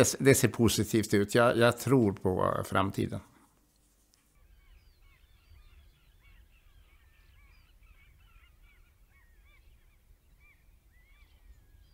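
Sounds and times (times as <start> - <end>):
flock of birds calling: 4.4 - 11.9.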